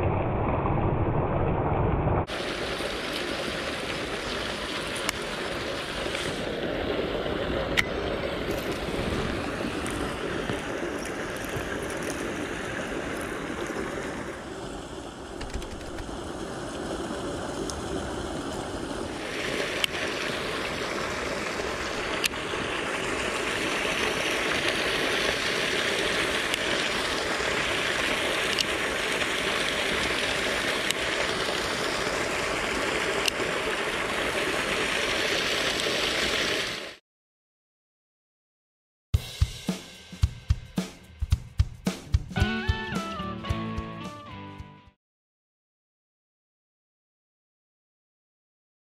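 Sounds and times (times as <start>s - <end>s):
water pouring into a canal: 2.2s - 37.0s.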